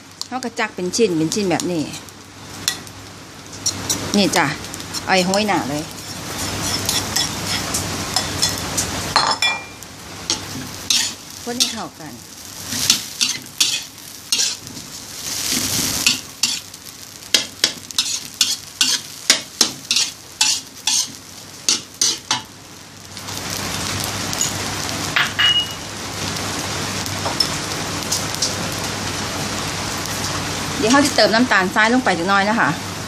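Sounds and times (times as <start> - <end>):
rice sizzling in a wok: 0.0 - 33.0
metal spatula scraping a wok: 3.5 - 4.2, 4.8 - 9.0, 10.3 - 11.9, 12.6 - 16.7, 17.4 - 22.4.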